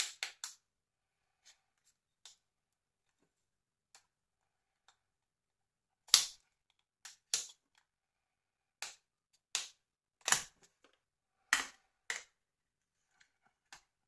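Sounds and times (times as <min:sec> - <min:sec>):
plastic snaps and clicks: 0:06.1 - 0:07.8.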